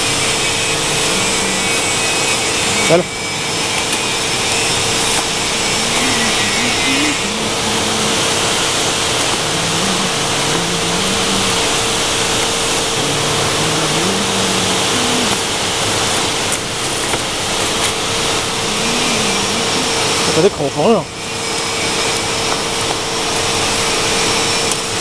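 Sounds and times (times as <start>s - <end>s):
faint low wavering notes: 0.0s - 16.2s
loud hiss of blowing air: 0.0s - 24.7s
constant whine: 0.0s - 25.0s.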